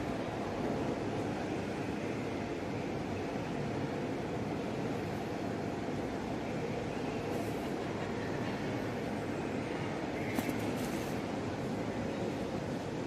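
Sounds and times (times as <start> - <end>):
low rumbling indoor background: 0.0 - 13.0.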